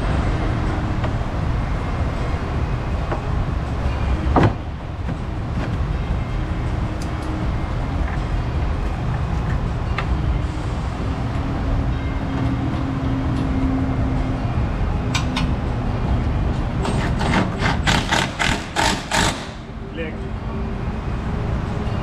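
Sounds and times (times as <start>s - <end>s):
workshop low rumble: 0.0s - 22.0s
cordless power tool pulses: 17.6s - 19.7s.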